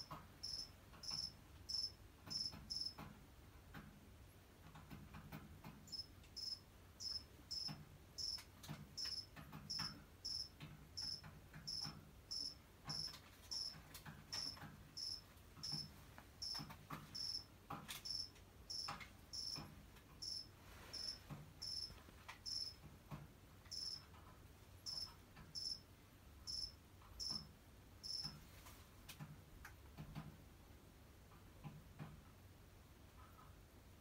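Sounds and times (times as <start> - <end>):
cricket chirping: 0.0 - 3.0, 5.9 - 8.4, 9.0 - 16.6, 17.2 - 19.6, 20.2 - 22.8, 23.7 - 24.0, 24.9 - 25.8, 26.5 - 28.3.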